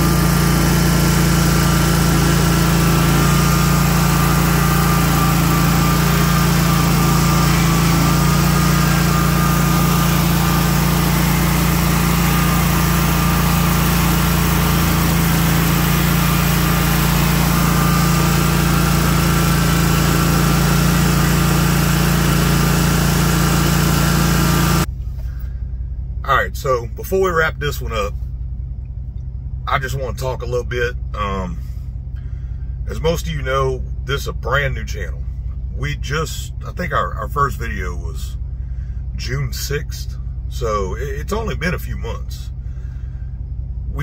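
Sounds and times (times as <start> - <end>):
lawn mower engine running: 0.0 - 32.8, 42.2 - 44.0.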